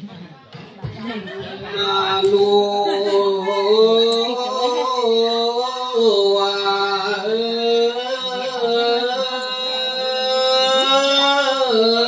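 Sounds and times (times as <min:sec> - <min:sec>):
person singing long gliding notes: 0:02.0 - 0:12.0.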